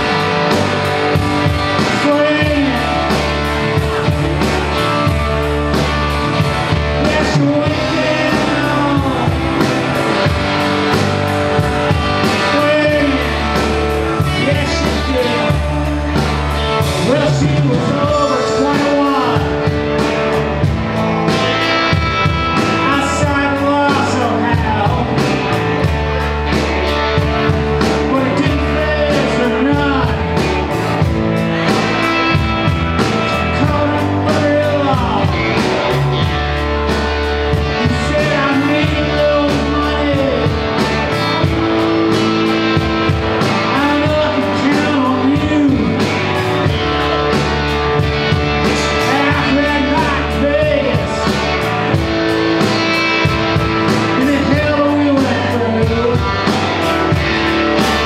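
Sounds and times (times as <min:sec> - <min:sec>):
person singing: 0:00.0 - 0:52.0, 0:52.6 - 0:58.0
bass guitar: 0:00.0 - 0:58.0
drums with cymbal beat: 0:00.0 - 0:58.0
electric guitars bending notes: 0:00.0 - 0:58.0.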